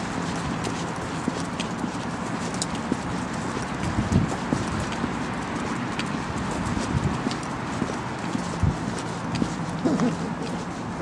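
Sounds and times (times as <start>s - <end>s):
footsteps on paving slabs: 0.0s - 11.0s.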